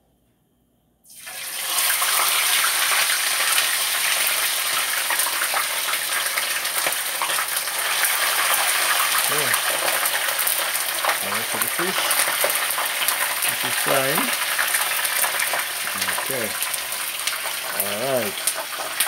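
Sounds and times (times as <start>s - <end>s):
fish sizzling in hot oil: 1.1s - 19.0s.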